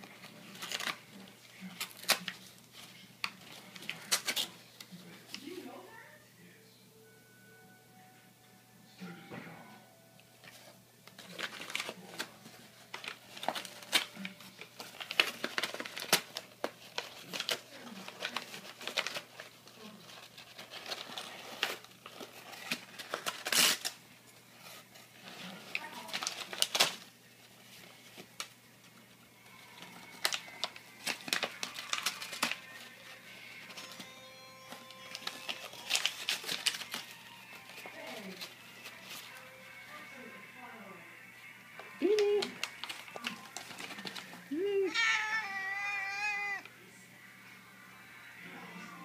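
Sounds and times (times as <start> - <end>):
paper rustling and ripping: 0.0 - 5.5, 10.4 - 39.6, 42.2 - 46.7
paper tearing snaps: 0.5 - 1.0, 1.6 - 2.5, 3.2 - 4.5, 12.9 - 19.5, 20.6 - 24.0, 25.7 - 27.1, 30.1 - 32.9, 35.1 - 37.2.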